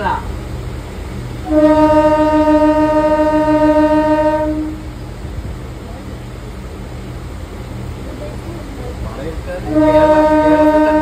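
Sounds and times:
train rumbling: 0.0s - 11.0s
train horn: 1.4s - 5.0s, 9.6s - 11.0s.

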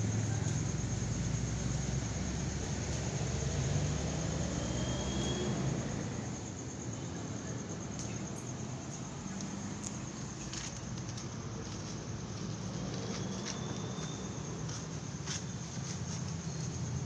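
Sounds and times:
vehicle engine rumbling: 0.0s - 6.9s
street hiss: 0.0s - 17.0s.

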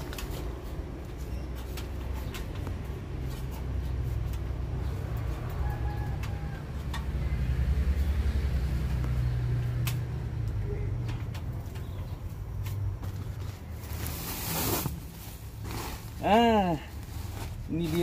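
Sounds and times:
clicks and rustles of handling: 0.0s - 7.3s.

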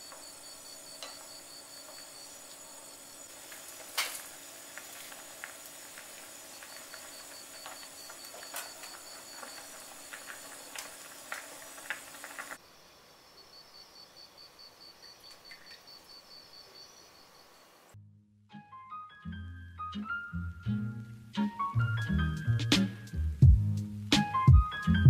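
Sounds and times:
soup bubbling at a rolling boil: 0.0s - 12.6s.

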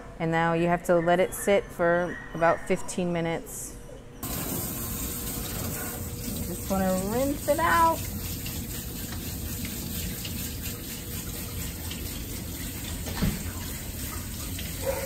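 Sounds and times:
water spraying from nozzle: 4.2s - 15.0s.

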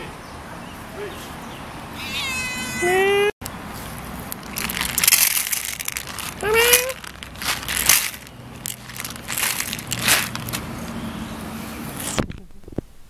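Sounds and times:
cat meowing: 2.0s - 3.3s
kibble rattling into tin bowl: 4.4s - 10.6s.

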